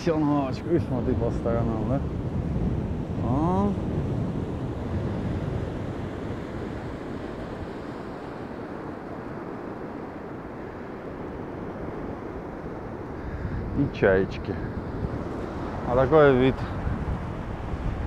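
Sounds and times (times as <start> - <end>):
surf breaking on beach: 0.0 - 18.0
wind on microphone: 0.0 - 18.0.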